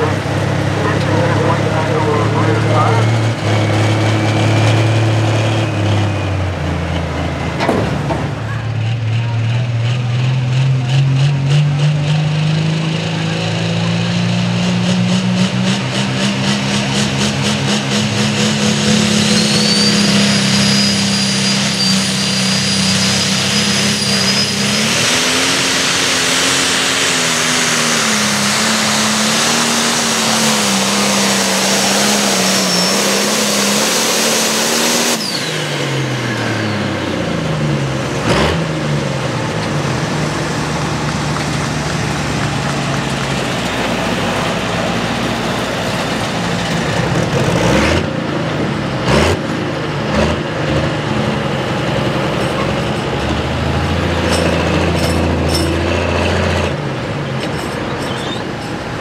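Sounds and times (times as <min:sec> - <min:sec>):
diesel tractor engine at full throttle: 0:00.0 - 0:59.0
high turbo whistle: 0:18.9 - 0:25.4.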